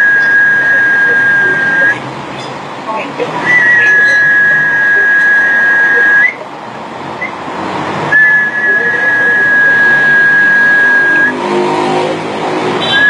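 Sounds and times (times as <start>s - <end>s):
high steady whistle tone: 0.0s - 2.0s, 3.4s - 6.4s, 8.1s - 11.4s, 12.8s - 13.0s.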